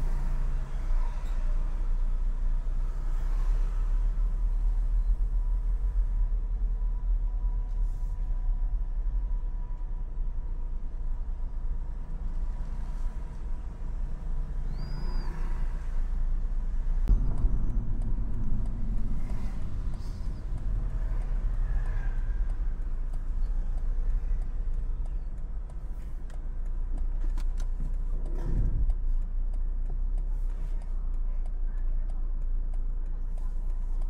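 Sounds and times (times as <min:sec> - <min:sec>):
car engine and tyres rumbling: 0:00.0 - 0:34.0
light regular ticks: 0:20.5 - 0:34.0.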